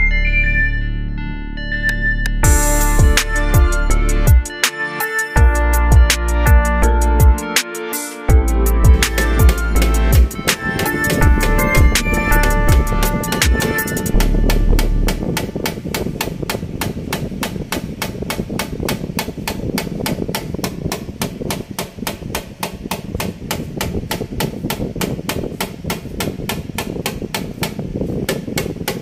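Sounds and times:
low rumble: 0.0s - 4.4s, 8.4s - 10.3s, 11.2s - 13.3s, 14.1s - 15.4s
rapid sharp tapping: 8.4s - 29.0s.

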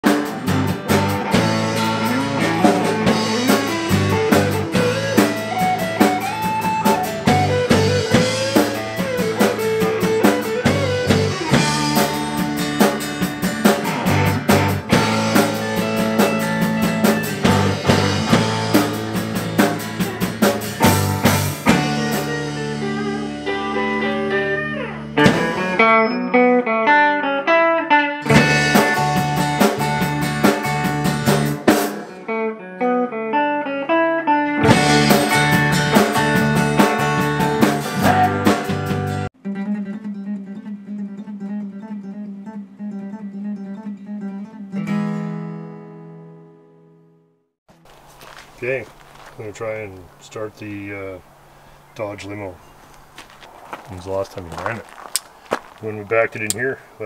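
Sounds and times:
band playing: 0.0s - 42.3s
guitar notes: 0.0s - 53.2s.

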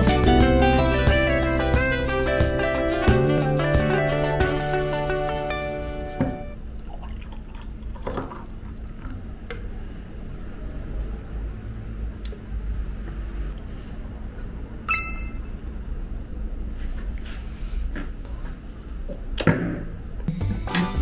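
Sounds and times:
beer pouring into glass: 6.6s - 9.0s
glasses clinking with ringing chime: 14.9s - 15.6s.

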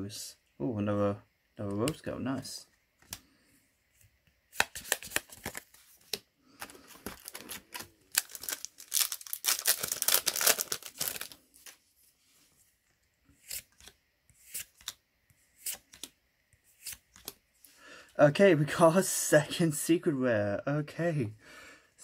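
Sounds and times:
cards being flipped and snapped: 3.0s - 3.3s, 4.5s - 6.2s, 13.4s - 15.0s, 15.6s - 16.2s, 16.8s - 17.4s.

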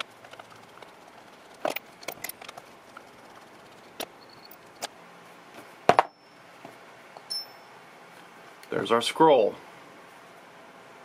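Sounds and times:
clicks and clinks of steel parts: 1.6s - 2.6s.

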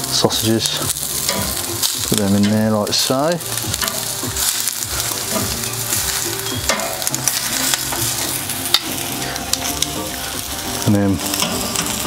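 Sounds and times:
sausages and onions sizzling: 0.0s - 12.0s
metal tongs clicking on pan: 1.2s - 2.6s, 3.2s - 4.1s, 6.6s - 8.1s.

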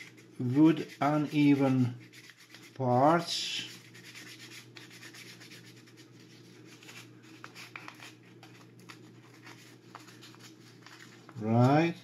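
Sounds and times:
sandpaper scratching wood: 0.0s - 6.1s.

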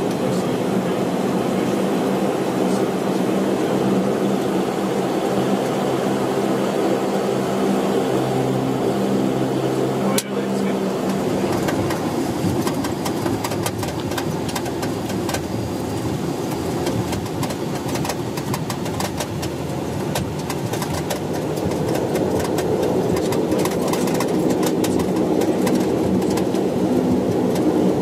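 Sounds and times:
turboprop engines running: 0.0s - 28.0s
small clicks and rattles: 11.1s - 26.7s.

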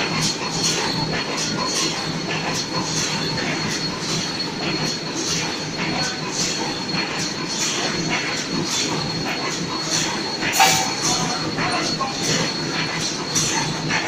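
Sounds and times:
welding machine clattering: 0.0s - 14.0s
thin high whine: 3.4s - 14.0s.

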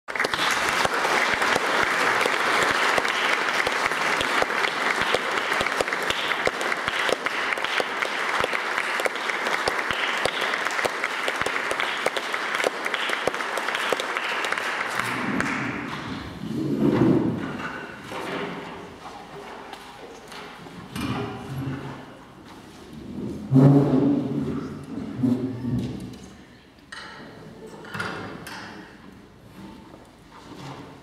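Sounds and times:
audience applauding: 0.1s - 16.0s.

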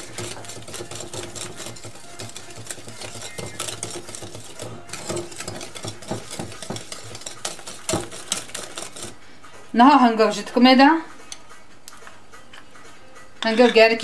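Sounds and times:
whisk clicking against glass bowl: 0.0s - 9.2s.

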